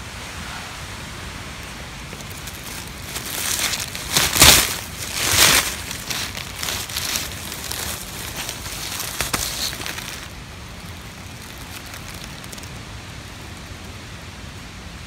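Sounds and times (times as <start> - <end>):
steady hiss: 0.0 - 15.0
hand digging through dry leaves: 2.0 - 12.8.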